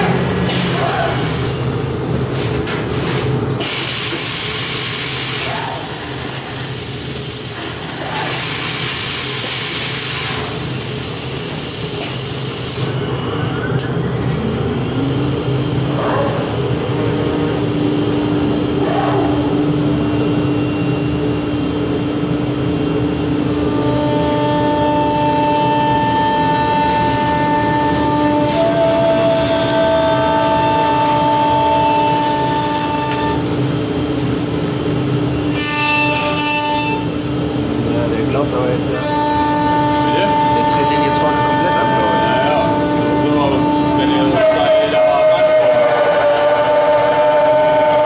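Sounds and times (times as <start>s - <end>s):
spindle whine: 12.8s - 48.0s
steady whining tones: 12.8s - 48.0s
router machine running: 23.0s - 33.6s, 37.7s - 48.0s.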